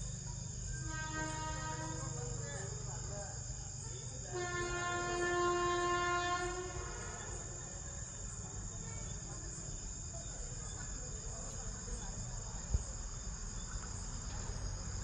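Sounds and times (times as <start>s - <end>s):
crickets chirring: 0.0s - 15.0s
train horn blast: 0.8s - 2.2s, 4.3s - 7.5s.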